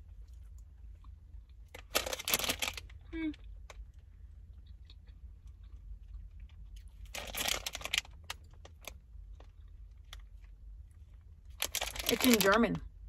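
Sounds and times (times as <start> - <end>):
plastic snack bag crinkling: 1.7 - 3.0, 6.8 - 10.5, 11.5 - 12.8
chewing: 3.7 - 8.7.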